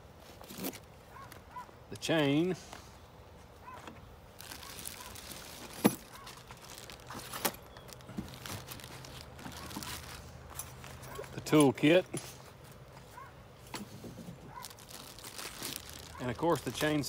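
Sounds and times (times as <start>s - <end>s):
plastic wrapping crinkling: 4.3s - 11.7s, 14.2s - 17.0s.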